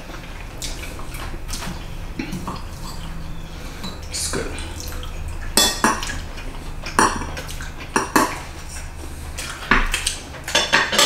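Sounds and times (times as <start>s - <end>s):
cutlery clinking on plates: 9.4s - 11.0s.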